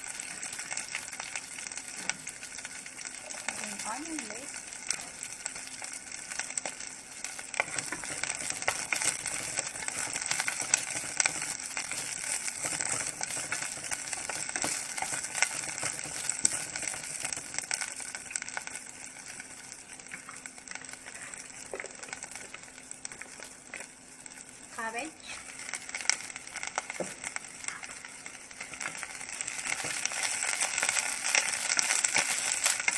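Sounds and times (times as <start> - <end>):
scallions sizzling in hot oil: 0.0 - 32.9
wooden spatula stirring: 7.6 - 17.3.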